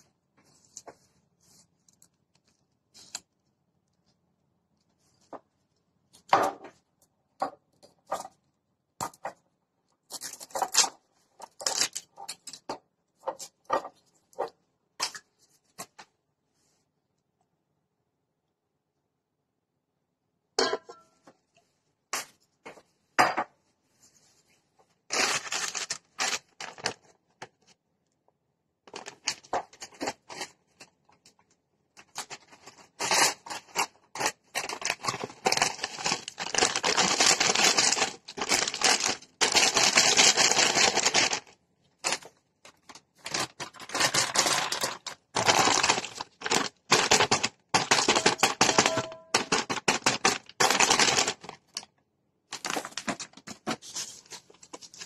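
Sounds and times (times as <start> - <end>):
plastic packaging crinkling: 10.1 - 16.0, 25.1 - 27.7, 28.9 - 31.4, 32.0 - 51.9, 52.5 - 55.0.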